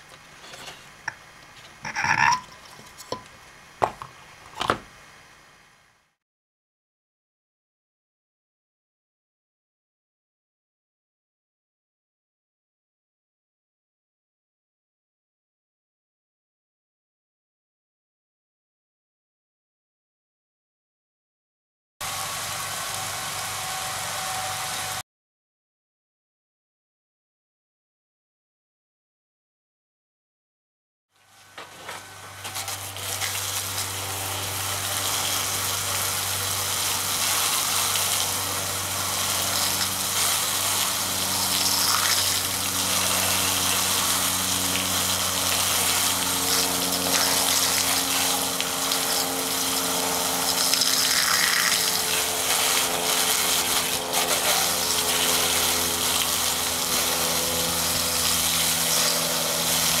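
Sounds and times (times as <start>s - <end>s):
water spraying on a fan: 22.0s - 25.0s, 31.2s - 60.0s
computer fan humming: 31.4s - 60.0s.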